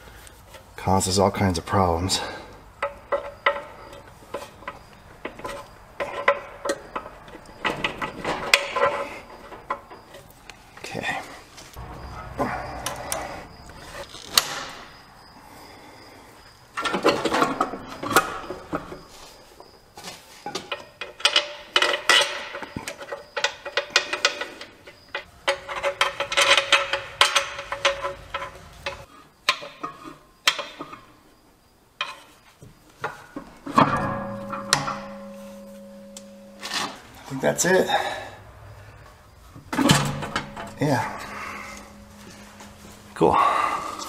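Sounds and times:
metal tools clinking: 0:02.2 - 0:11.1, 0:20.5 - 0:31.0, 0:33.0 - 0:38.2, 0:39.7 - 0:44.0.

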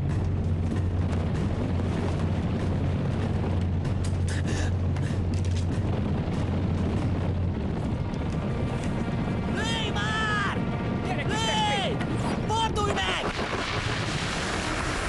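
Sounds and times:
stampeding herd hooves rumbling: 0:00.0 - 0:09.6.

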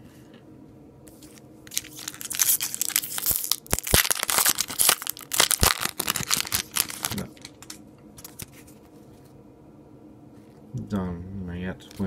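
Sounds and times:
foil pack crinkling and tearing: 0:01.7 - 0:08.5.

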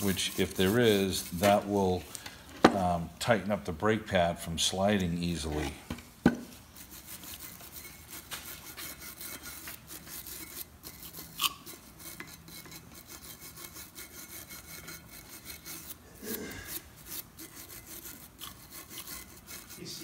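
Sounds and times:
wire brush scrubbing metal: 0:00.0 - 0:02.1, 0:06.6 - 0:20.0.

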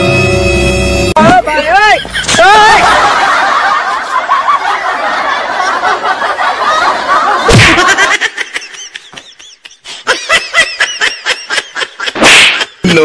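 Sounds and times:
high-pitched giggling laughter: 0:02.0 - 0:12.8.

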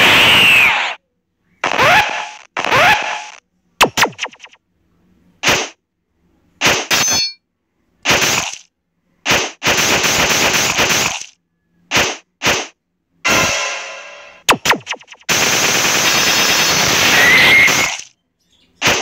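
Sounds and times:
noisy burst: 0:00.0 - 0:01.0, 0:01.6 - 0:04.6, 0:13.3 - 0:18.1
fight hits and clangs: 0:06.6 - 0:07.4
metallic ring: 0:06.9 - 0:07.4.

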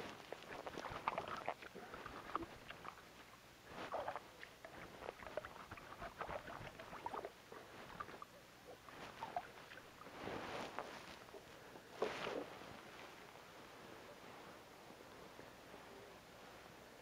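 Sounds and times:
rustling shuffle on snow: 0:00.0 - 0:01.3, 0:06.4 - 0:17.0
scratchy ticks and rustling: 0:00.0 - 0:13.2.

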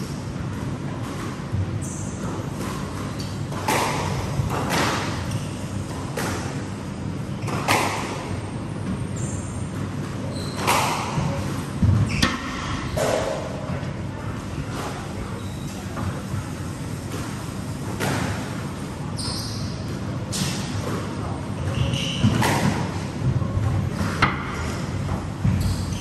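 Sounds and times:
squash ball hits: 0:02.6 - 0:05.3, 0:07.4 - 0:08.2, 0:10.6 - 0:13.6.

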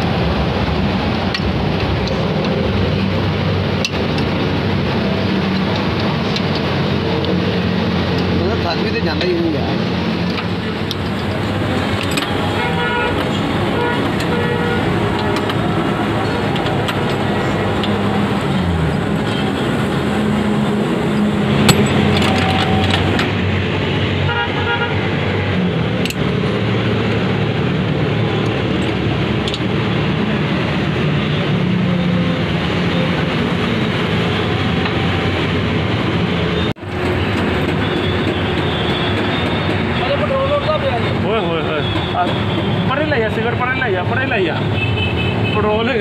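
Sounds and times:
road traffic engines passing: 0:00.0 - 0:46.0
vehicle horns tooting: 0:12.2 - 0:15.5, 0:24.3 - 0:25.1, 0:44.6 - 0:45.8.

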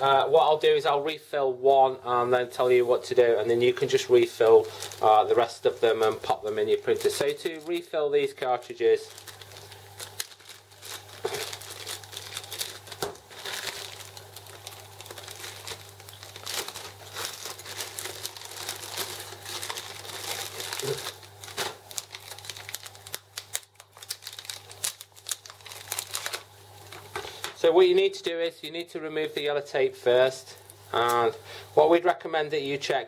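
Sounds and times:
plastic bag crinkling: 0:03.1 - 0:27.6.

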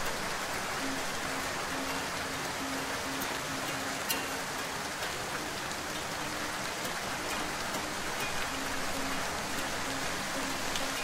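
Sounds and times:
rain falling: 0:00.0 - 0:11.0.

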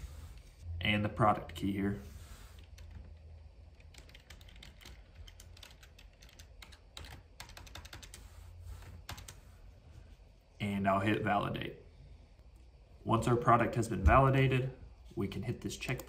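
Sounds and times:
keyboard typing: 0:02.6 - 0:09.4.

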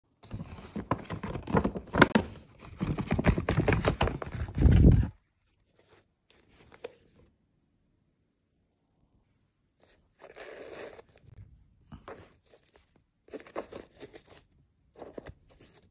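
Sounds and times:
paper bag rustling and crinkling: 0:00.2 - 0:05.2.

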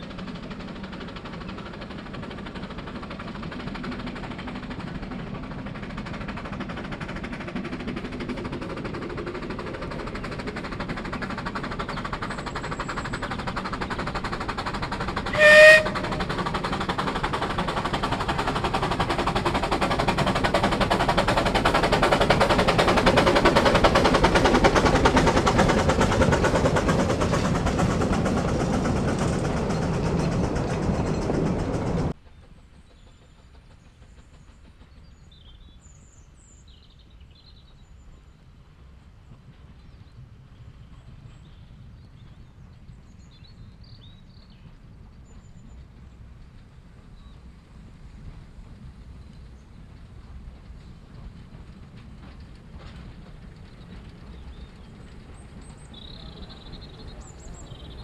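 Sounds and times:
steam locomotive exhaust beats: 0:00.0 - 0:58.0
steam whistle toot: 0:15.3 - 0:16.4.

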